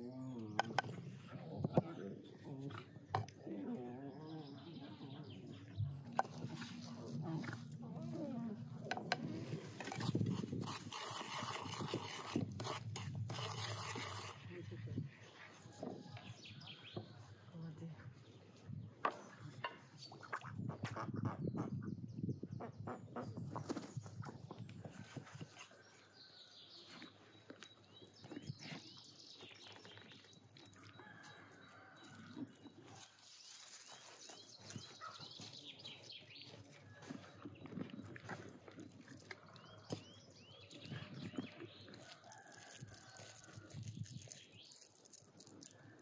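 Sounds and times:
small birds chirping: 15.7 - 46.0.

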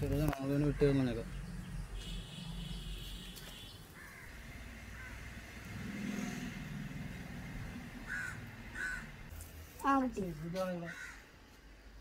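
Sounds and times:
passing vehicle engine: 4.3 - 9.3.

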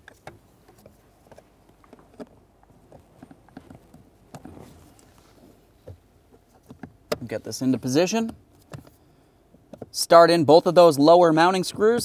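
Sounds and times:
scraping rustle: 0.1 - 7.6.

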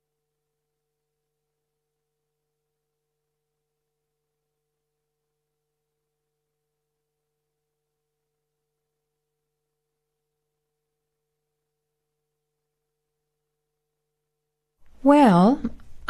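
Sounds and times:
faint recording hum and hiss: 14.8 - 16.0.

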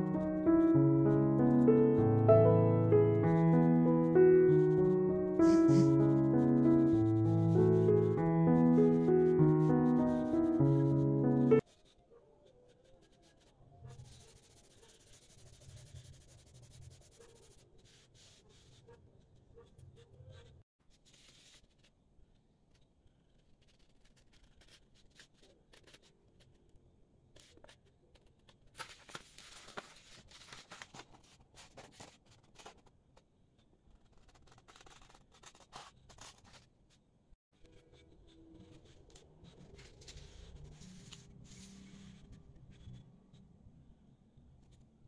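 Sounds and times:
paper rustling: 27.4 - 32.9, 33.9 - 36.7, 38.6 - 42.2
scissors snipping paper: 34.0 - 36.7.

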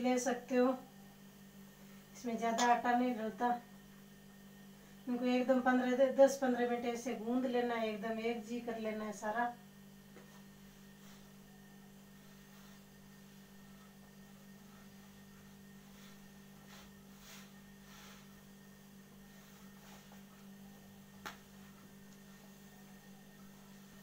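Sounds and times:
steady low hum: 0.0 - 24.0
hands kneading dough: 10.0 - 24.0.

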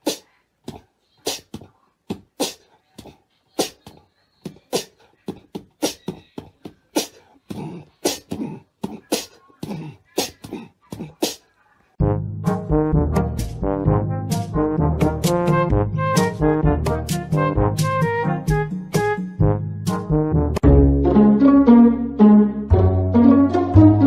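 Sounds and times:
beatboxing mouth clicks and pops: 0.0 - 11.4
brass music: 12.0 - 24.0.

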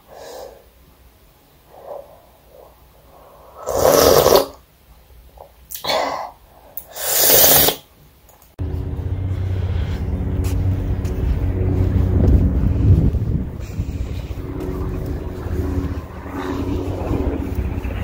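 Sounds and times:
person slurping food: 3.2 - 4.6, 5.8 - 7.8
low hum: 8.6 - 18.0
wind on microphone: 9.4 - 18.0.

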